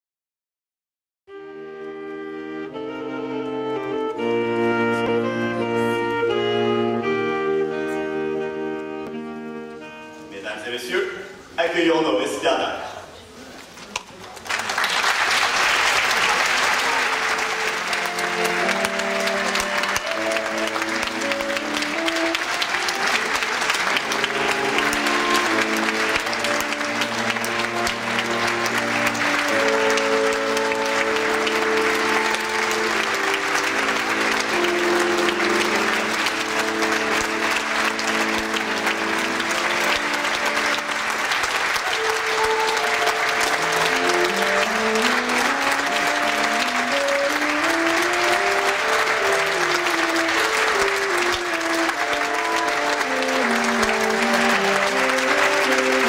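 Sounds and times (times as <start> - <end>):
small ensemble slow melody: 1.3 - 10.5, 15.9 - 56.0
audience applauding: 13.9 - 56.0.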